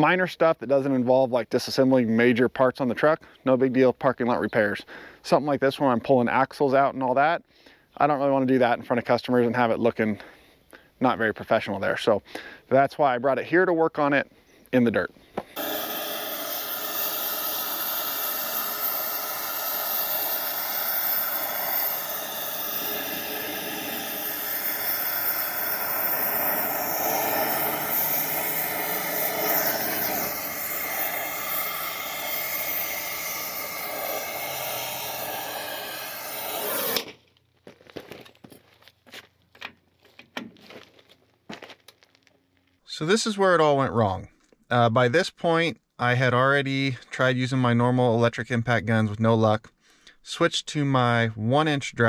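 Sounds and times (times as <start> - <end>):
cutting torch flame hissing: 15.6 - 37.2.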